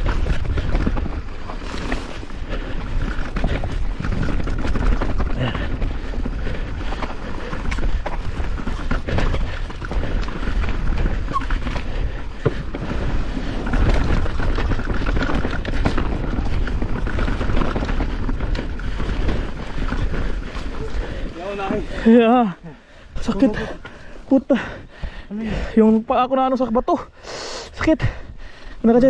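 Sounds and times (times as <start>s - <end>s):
bike knocks and rattles: 0.0s - 21.6s
mountain bike rumbling on trail: 0.0s - 27.1s.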